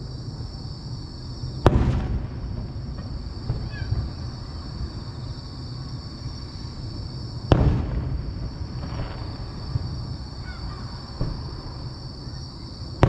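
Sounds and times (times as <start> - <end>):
firework bang with echo: 1.6 - 4.2, 7.5 - 11.8.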